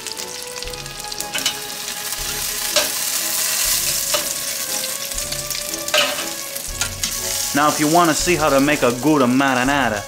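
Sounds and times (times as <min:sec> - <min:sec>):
meatballs sizzling in oil: 0:00.0 - 0:10.0
metal tongs clicking on pan: 0:01.3 - 0:01.6, 0:02.7 - 0:03.0, 0:04.1 - 0:04.4, 0:05.9 - 0:07.2.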